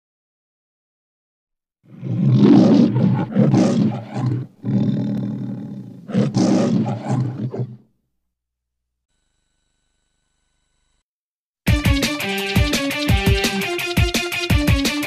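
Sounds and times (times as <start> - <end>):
lion roaring: 1.9 - 7.8.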